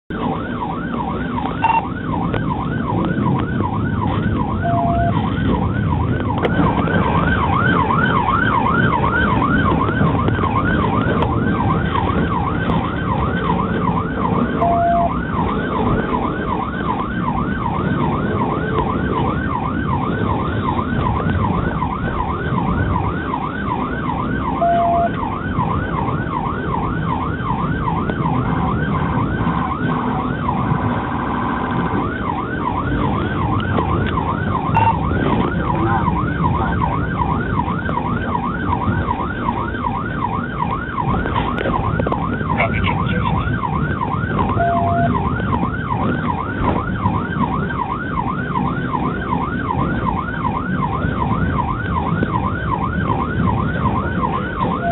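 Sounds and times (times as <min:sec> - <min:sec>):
low road rumble: 0:00.0 - 0:54.9
police siren yelping: 0:00.1 - 0:54.9
short beeps: 0:01.6 - 0:01.8, 0:04.6 - 0:05.2, 0:14.6 - 0:15.1, 0:24.6 - 0:25.1, 0:34.8 - 0:35.0, 0:44.6 - 0:45.1.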